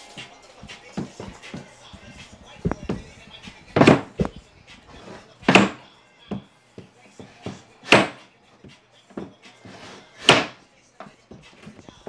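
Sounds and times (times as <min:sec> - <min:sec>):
loud sharp knocks: 0:07.9 - 0:08.2.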